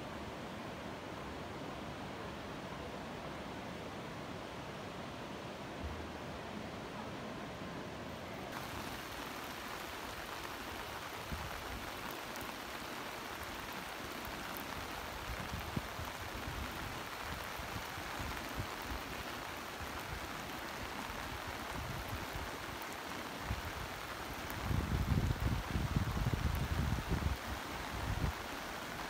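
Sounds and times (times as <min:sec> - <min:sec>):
heavy rain hissing: 0:08.2 - 0:29.0
wind buffeting microphone: 0:24.6 - 0:27.4.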